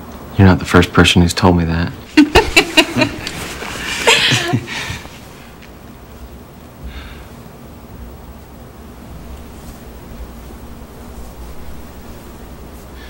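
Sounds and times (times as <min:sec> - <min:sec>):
woman laughing softly: 0:02.2 - 0:05.2.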